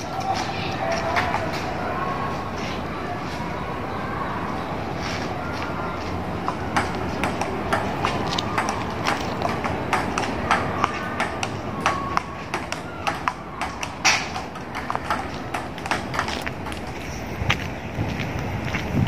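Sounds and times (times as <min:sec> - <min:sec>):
steady background noise: 0:00.0 - 0:19.0
table tennis ball clicking: 0:06.4 - 0:17.0.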